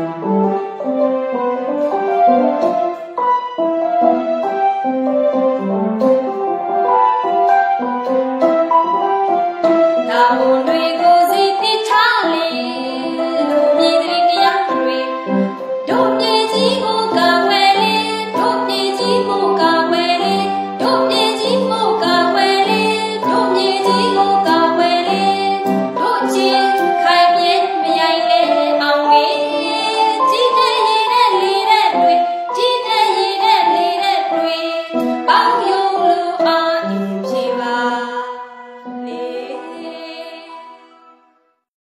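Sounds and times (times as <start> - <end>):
electronic keyboard: 0.0 - 41.4
woman singing: 10.1 - 41.1.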